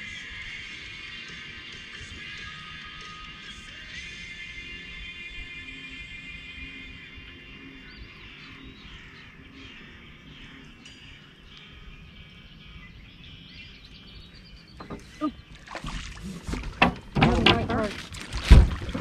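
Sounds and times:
small birds chirping: 7.7s - 15.8s.

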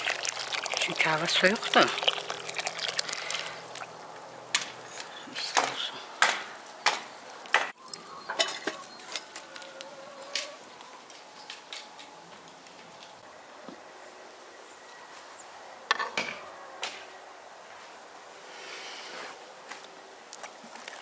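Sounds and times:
hand stirring water in pot: 0.0s - 4.2s
charcoal crackling: 0.0s - 13.2s.

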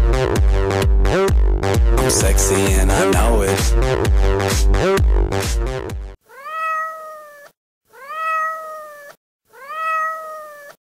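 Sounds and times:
dance music: 0.4s - 5.8s
cat meowing: 6.2s - 10.8s.

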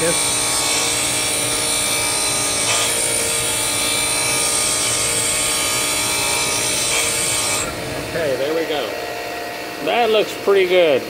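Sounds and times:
bench grinder grinding steel: 0.0s - 9.7s
motor humming: 0.0s - 11.0s.

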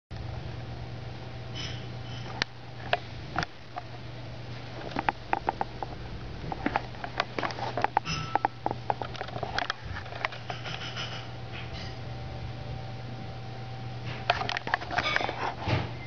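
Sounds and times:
clicks and knocks of wheels: 4.8s - 11.9s.

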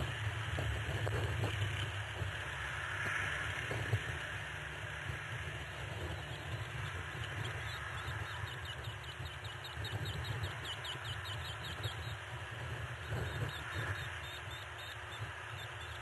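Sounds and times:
low background rumble: 0.0s - 16.0s
bird chirping: 6.1s - 12.2s, 13.0s - 16.0s.

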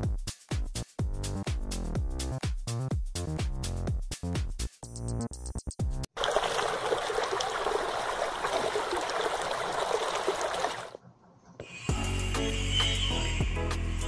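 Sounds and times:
trickling bubbling water: 6.2s - 11.0s.

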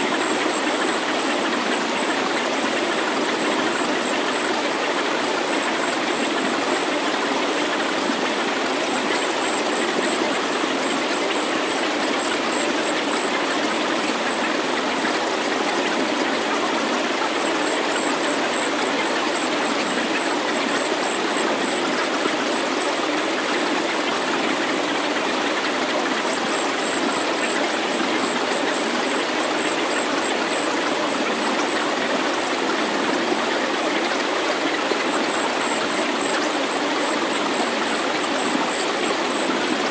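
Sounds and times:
steady synthesized rushing noise: 0.0s - 6.9s
thin high pulsing tone: 0.0s - 7.0s.

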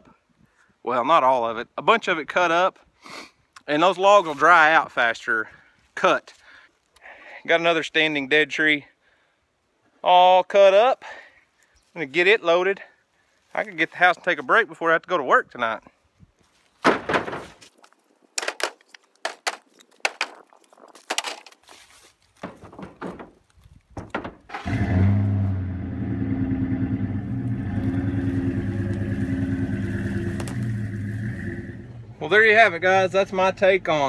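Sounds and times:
firewood logs knocking: 16.8s - 17.7s, 18.4s - 20.4s, 22.4s - 24.5s, 30.2s - 30.7s
pickup engine idling: 24.7s - 33.0s.

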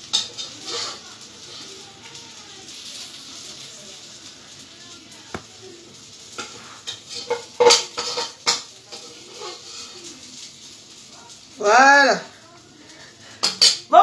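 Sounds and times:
utensils and dishes clinking: 0.0s - 4.1s, 5.6s - 10.7s, 13.0s - 14.0s.

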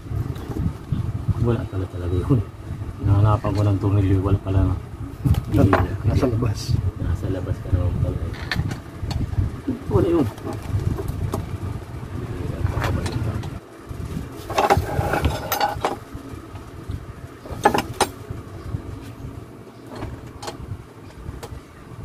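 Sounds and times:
low background rumble: 0.0s - 22.0s
metal tools clinking: 14.5s - 16.0s.

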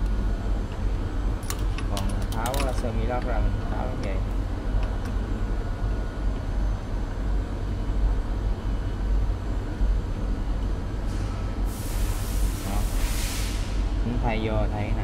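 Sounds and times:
workshop machinery humming: 0.0s - 15.0s
loud hiss: 11.7s - 13.8s.

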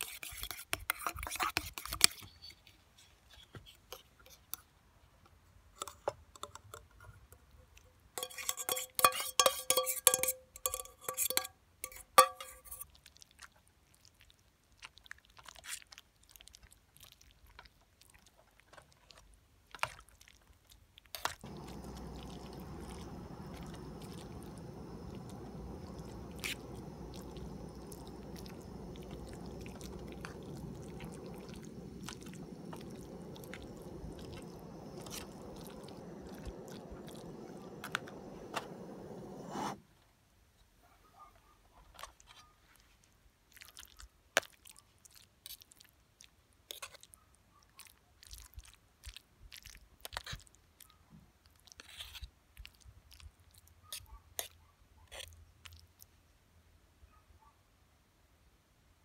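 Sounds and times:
fork stirring in mess tin: 0.0s - 2.5s, 8.2s - 12.8s, 21.2s - 39.8s
metal spatula scraping cup: 0.0s - 2.5s, 8.2s - 12.8s, 21.4s - 39.8s
gas burner hissing: 21.4s - 39.8s.

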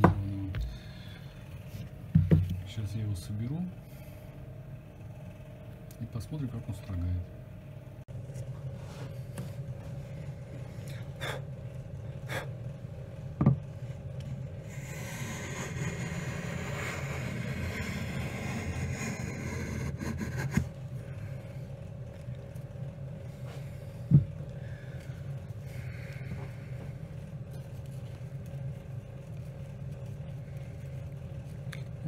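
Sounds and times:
low hum: 0.0s - 32.0s
hand plane shaving wood: 14.7s - 20.7s.

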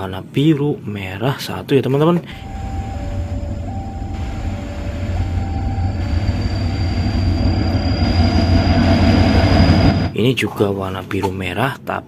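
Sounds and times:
locomotive engines rumbling: 2.3s - 10.2s
steady high whine: 2.3s - 10.2s.

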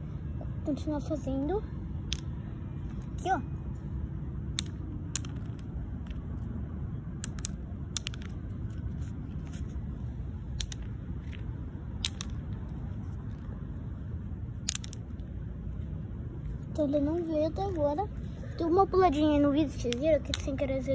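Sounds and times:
small sharp clicks: 7.2s - 8.4s, 10.5s - 12.7s.

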